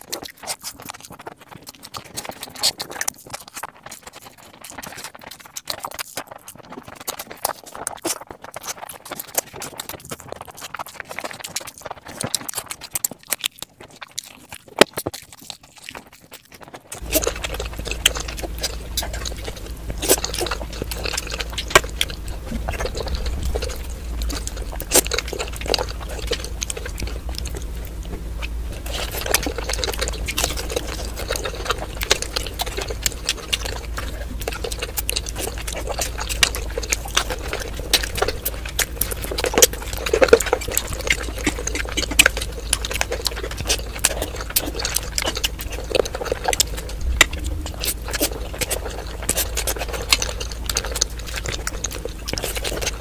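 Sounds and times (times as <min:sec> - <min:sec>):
wet chewing and slurping: 0:00.0 - 0:53.0.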